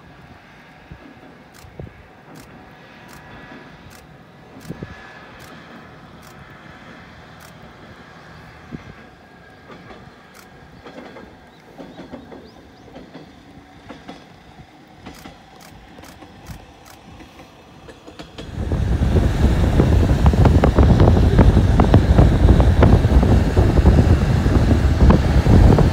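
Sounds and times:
distant diesel railcar: 0.0 - 25.9
road and wind noise in vehicle: 0.0 - 25.9
train wheel clicks: 0.6 - 7.9, 9.4 - 25.9.

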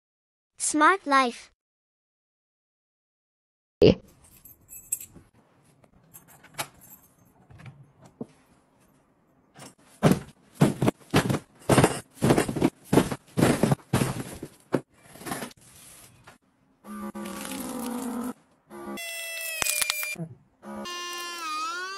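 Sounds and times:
parcels thudding onto tiled floor: 10.0 - 15.4.

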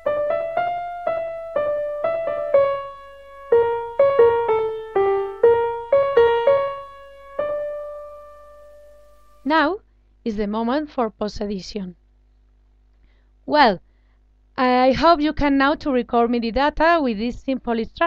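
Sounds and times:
piano melody: 0.0 - 9.5.

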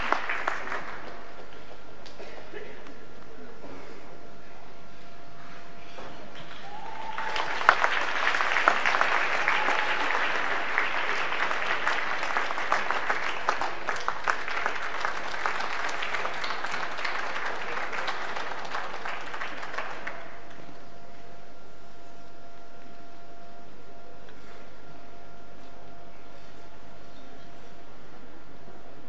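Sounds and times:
audience applauding: 0.0 - 2.2, 6.3 - 20.8.

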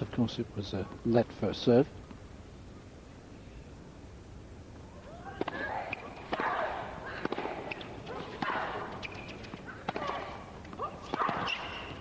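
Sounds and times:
tennis racket hitting ball: 5.3 - 11.9.

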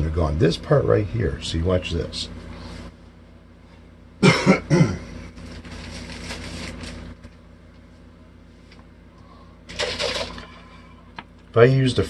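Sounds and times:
steady low hum: 0.0 - 12.0
man coughing: 4.2 - 5.2.

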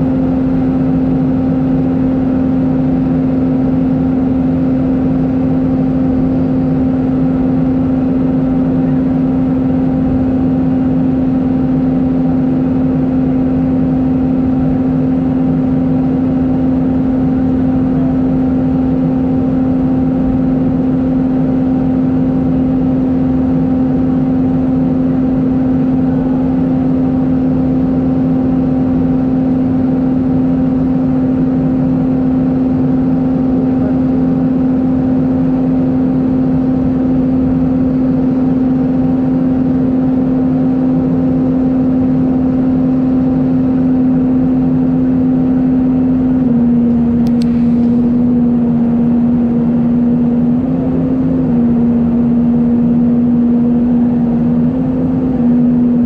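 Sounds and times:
airplane cabin drone: 0.0 - 56.0.

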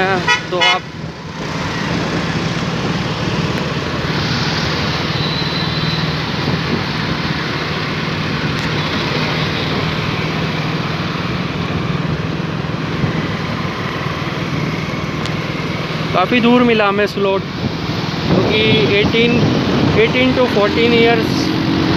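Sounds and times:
rush of wind and traffic: 0.0 - 21.9.

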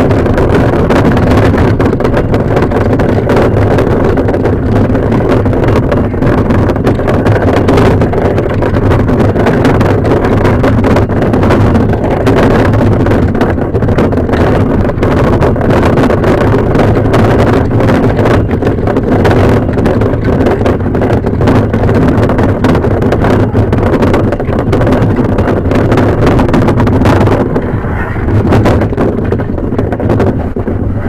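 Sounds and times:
loud steady rumbling: 0.0 - 31.0
low hum: 0.0 - 31.0.

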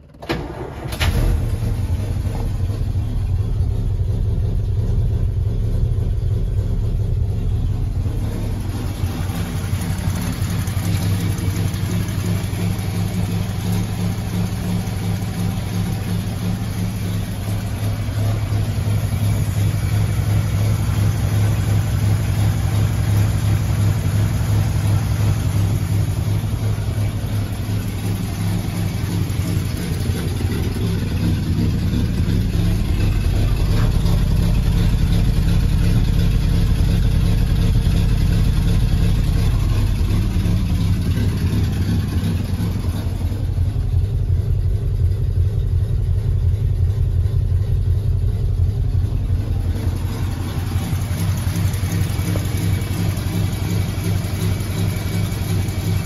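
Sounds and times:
car engine cold start: 0.0 - 3.8, 7.9 - 36.2.

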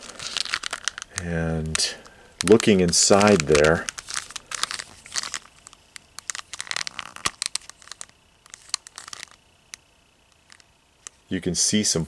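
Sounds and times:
scratchy rustling: 2.4 - 9.4.

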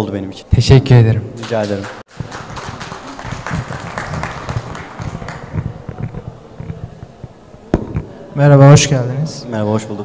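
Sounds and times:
audience clapping: 1.4 - 6.9.

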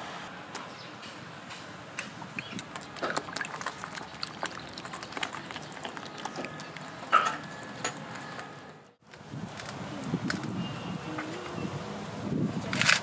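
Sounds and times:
wet dough squelching: 2.3 - 8.8.

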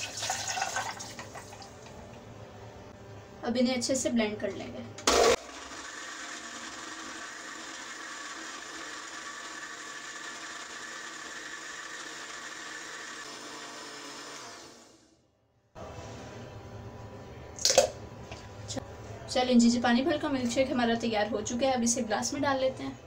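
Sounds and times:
blender running: 5.0 - 15.2.

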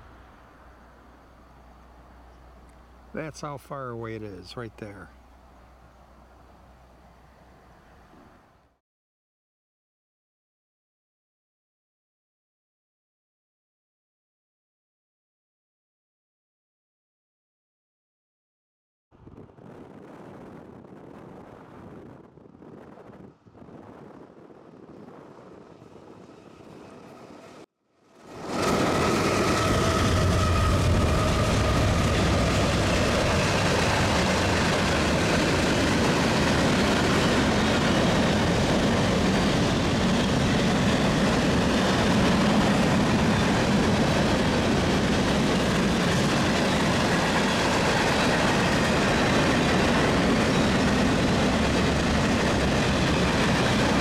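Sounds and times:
faint wind: 0.0 - 8.8, 19.2 - 54.0
freight train wheels rumbling: 28.2 - 54.0.

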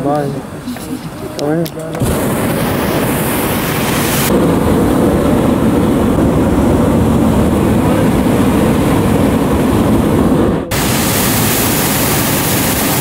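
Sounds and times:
propane burner roaring: 0.0 - 13.0.

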